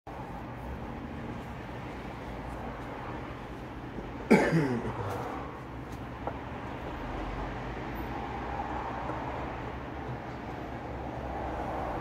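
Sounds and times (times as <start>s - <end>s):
person coughing: 4.2s - 5.2s.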